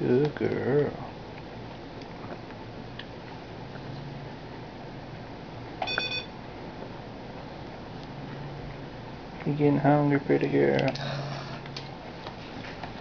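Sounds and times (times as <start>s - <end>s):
short electronic beep: 5.8s - 6.3s.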